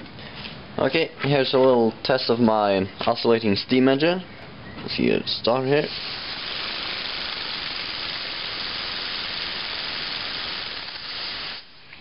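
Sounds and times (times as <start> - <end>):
compressed air hissing: 5.8 - 11.7.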